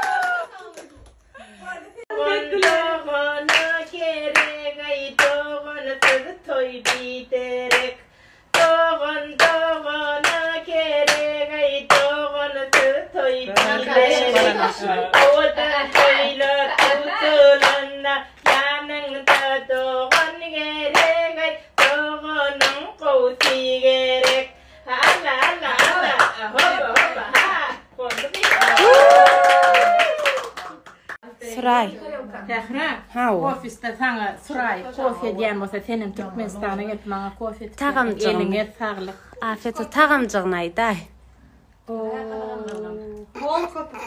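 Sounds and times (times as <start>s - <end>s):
group clapping along: 0.0s - 1.2s, 2.5s - 31.2s.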